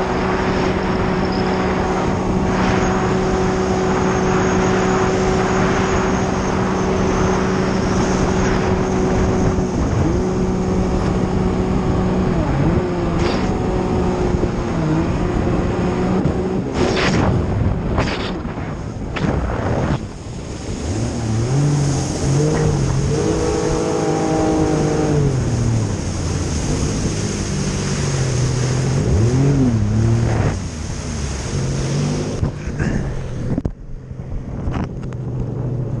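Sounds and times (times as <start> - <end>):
jet ski engine running: 0.0 - 36.0
wind on microphone: 0.0 - 36.0
rushing spray: 16.7 - 33.5.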